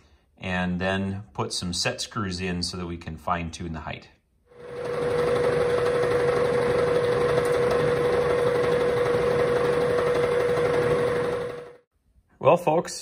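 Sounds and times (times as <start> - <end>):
milling machine cutting metal: 4.6 - 11.8.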